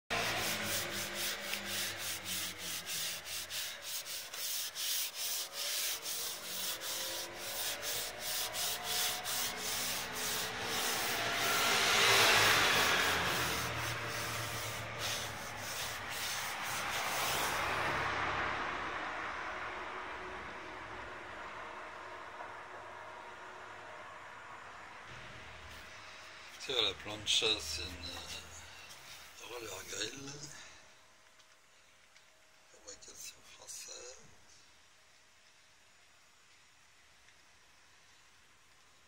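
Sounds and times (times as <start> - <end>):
paper towel rubbing metal plate: 0.1 - 17.6.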